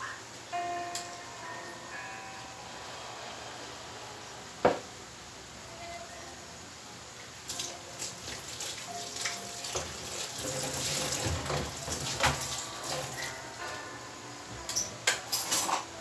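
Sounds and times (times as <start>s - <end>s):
water running: 7.2s - 13.7s.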